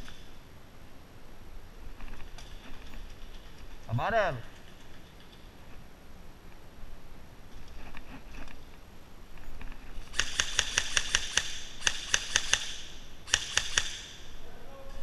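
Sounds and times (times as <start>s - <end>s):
airsoft rifle firing bursts: 10.1s - 14.3s.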